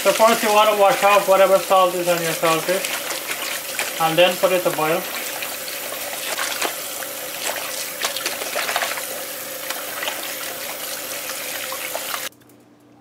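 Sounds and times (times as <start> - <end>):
hands swishing fish in water: 0.0 - 12.3
small splashes: 0.0 - 12.3.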